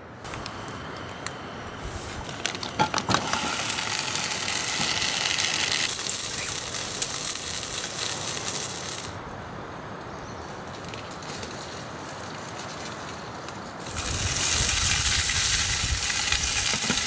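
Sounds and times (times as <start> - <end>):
sausages sizzling: 1.8 - 9.2, 13.8 - 17.0.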